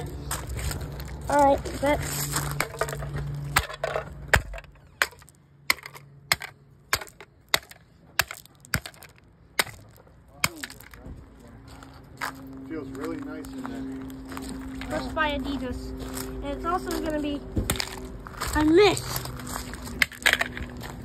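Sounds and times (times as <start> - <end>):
footsteps on gravel: 0.1 - 3.8, 8.2 - 21.0.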